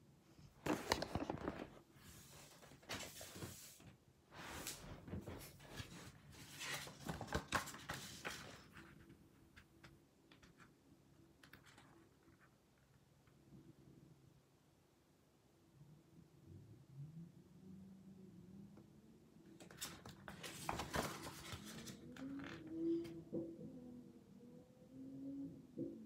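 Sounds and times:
pages turning: 0.6s - 9.0s, 19.6s - 22.6s
paper booklet rustling: 0.6s - 10.7s, 19.6s - 22.6s.

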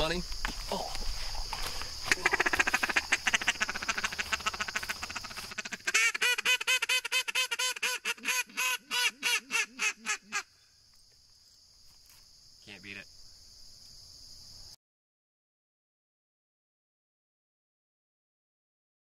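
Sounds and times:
duck call rattling chatter: 2.1s - 10.4s
duck call quacks: 2.1s - 10.5s.

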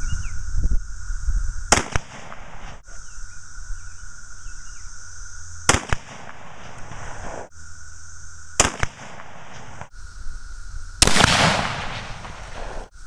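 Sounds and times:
rifle shot crack: 1.7s - 2.8s, 5.7s - 7.5s, 8.6s - 9.9s, 11.0s - 12.9s.

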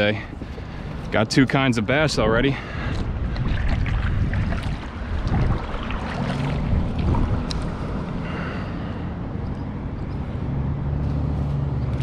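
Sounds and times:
wind buffeting microphone: 0.0s - 11.8s
paddle splashing in water: 2.7s - 8.2s.

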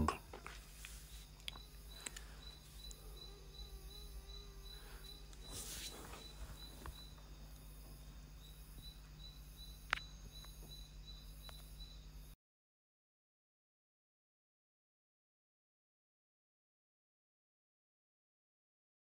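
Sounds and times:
thin high whine: 0.0s - 12.3s
steady low hum: 0.0s - 12.4s.

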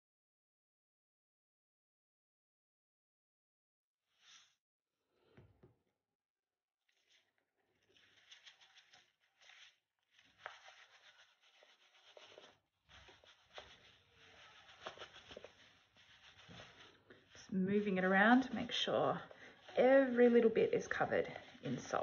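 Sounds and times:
salt pattering on paper: 6.9s - 22.0s.

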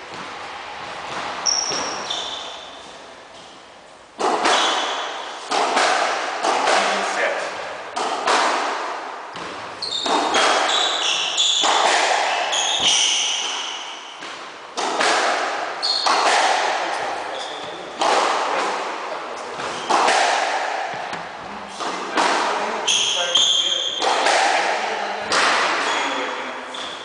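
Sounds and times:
shoes squeaking on wooden floor: 1.4s - 2.8s, 9.8s - 13.5s, 15.8s - 16.2s
squash ball cracking off rackets: 7.9s - 16.9s.

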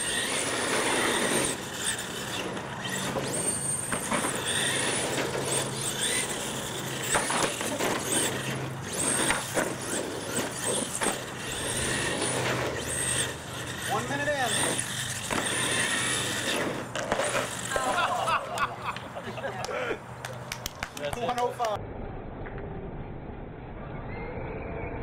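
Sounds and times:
toy truck motor whining: 0.0s - 18.4s.

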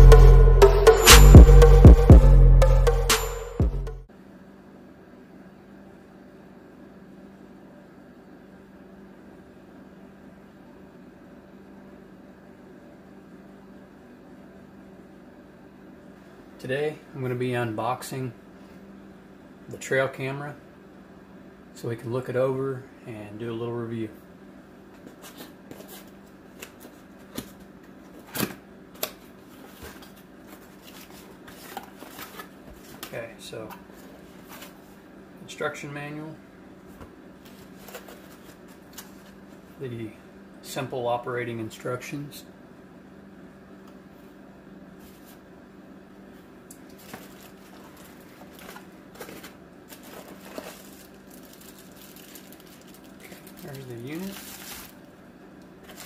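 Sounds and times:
steady low hum: 0.0s - 56.0s
cardboard packaging rustling: 29.5s - 33.1s, 37.4s - 39.4s, 46.9s - 55.1s, 55.8s - 56.0s.

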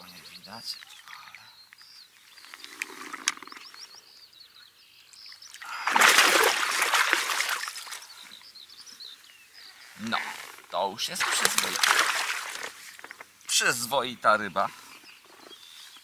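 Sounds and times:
small birds singing: 0.0s - 16.0s
fish thrashing and splashing: 5.6s - 8.0s, 11.2s - 13.1s.

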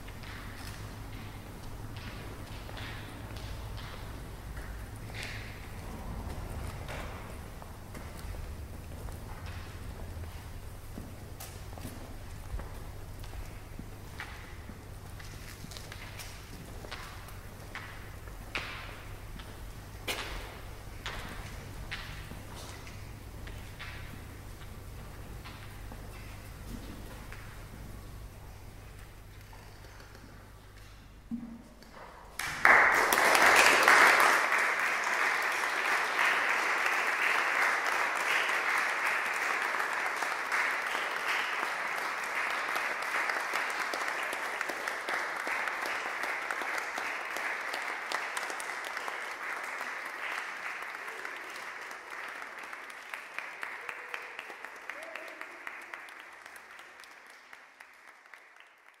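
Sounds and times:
audience applauding: 0.0s - 10.7s, 32.4s - 59.0s.

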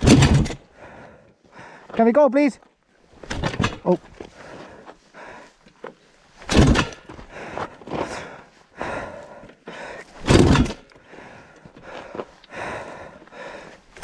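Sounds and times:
dirt bike kick-start thumps: 6.4s - 7.2s, 10.2s - 10.9s.

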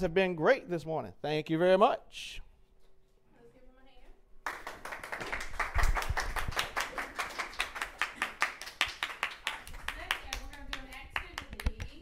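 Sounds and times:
audience applauding: 4.4s - 11.3s.

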